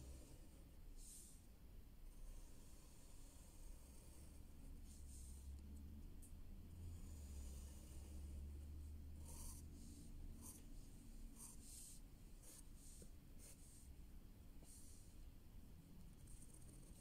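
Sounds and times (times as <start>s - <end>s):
pencil scratching on paper: 2.1s - 5.5s, 6.8s - 13.9s, 14.6s - 15.2s, 16.2s - 17.0s.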